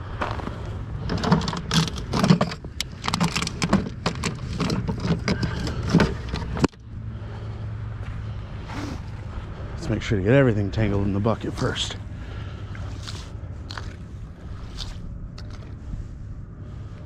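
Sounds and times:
crunching and scraping on ice: 0.0 - 6.7, 11.0 - 16.0
steady low hum: 0.0 - 17.0.

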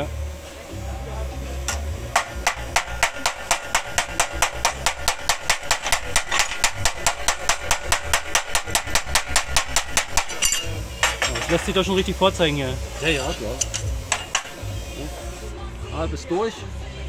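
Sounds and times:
chipping hammer tapping on steel: 1.7 - 11.8, 13.6 - 14.6.

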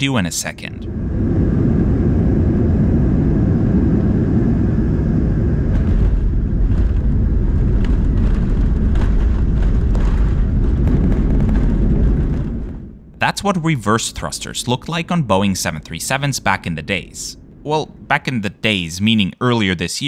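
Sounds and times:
jet engines in reverse thrust: 0.8 - 13.0.

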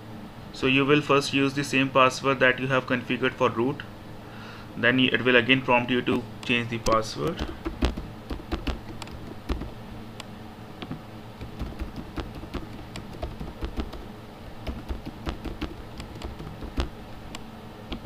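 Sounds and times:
faint low hum: 0.0 - 18.0
keyboard key clicks: 6.8 - 9.7, 10.8 - 14.0, 14.6 - 16.9.

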